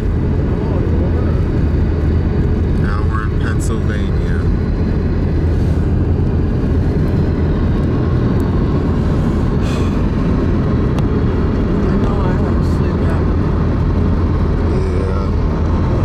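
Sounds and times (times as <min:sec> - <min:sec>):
vehicle driving on road: 0:00.0 - 0:16.0.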